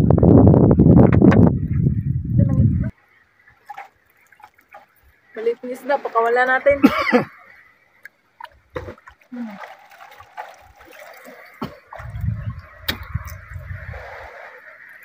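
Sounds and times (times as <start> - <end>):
low rumble: 0.0 - 2.9, 12.0 - 14.2
water lapping against boat: 2.9 - 15.0.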